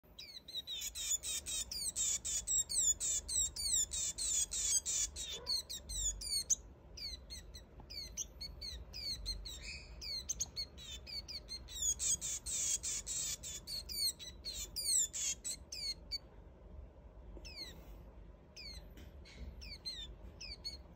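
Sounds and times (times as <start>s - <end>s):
bird begging calls: 0.2s - 16.2s.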